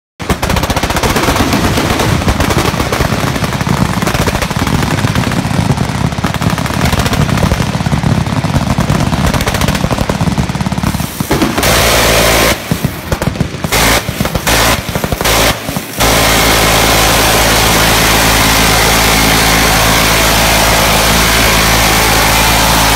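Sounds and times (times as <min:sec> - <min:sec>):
machine-gun fire: 0:00.2 - 0:22.9
rotary minigun bursts: 0:10.7 - 0:22.9.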